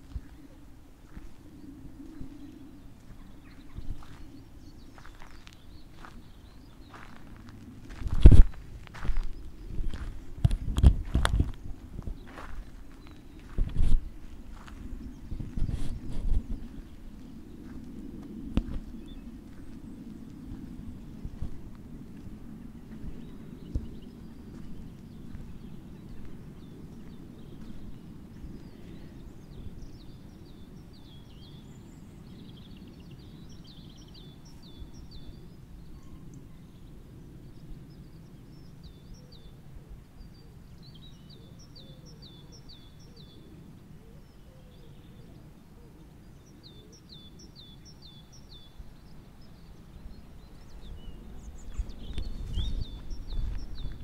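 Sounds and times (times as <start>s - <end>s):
low outdoor rumble: 0.0s - 41.6s
songbird singing: 0.0s - 54.0s.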